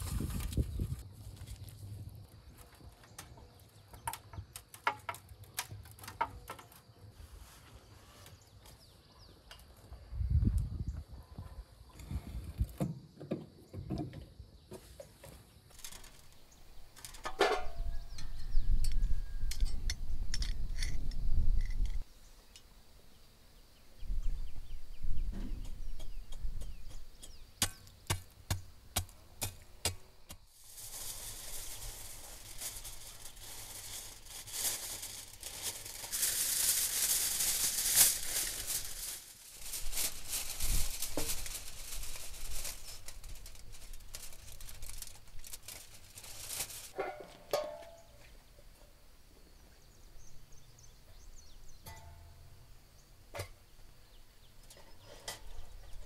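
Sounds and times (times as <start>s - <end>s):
aluminium foil crackling: 0.0s - 6.9s, 15.7s - 18.3s, 27.6s - 47.1s.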